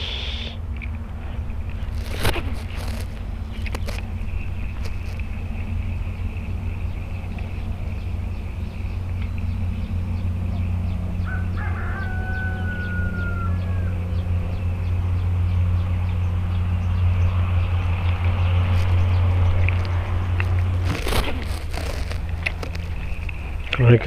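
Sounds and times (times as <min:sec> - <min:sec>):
steady low hum: 0:00.0 - 0:24.0
rooster crowing: 0:11.1 - 0:14.6.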